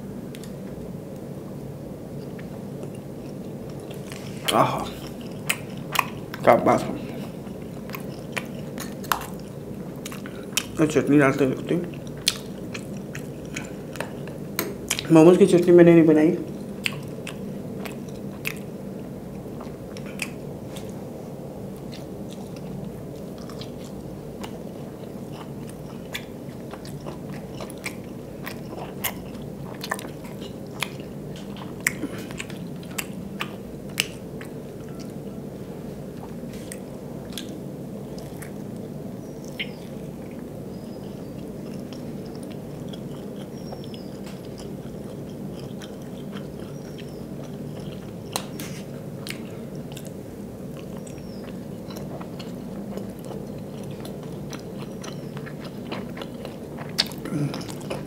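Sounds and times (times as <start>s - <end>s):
biting and chewing food: 2.2s - 10.8s, 21.8s - 35.1s, 36.1s - 58.0s.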